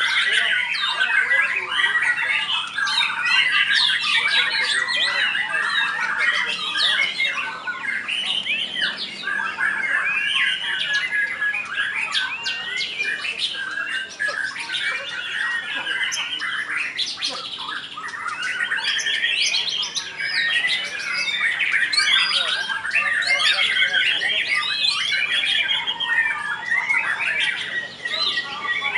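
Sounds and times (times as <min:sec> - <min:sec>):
songbirds whistling and chirping: 0:00.0 - 0:28.9.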